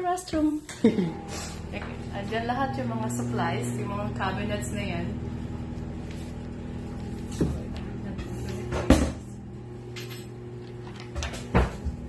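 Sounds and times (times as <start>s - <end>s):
steady low hum: 0.4s - 12.0s.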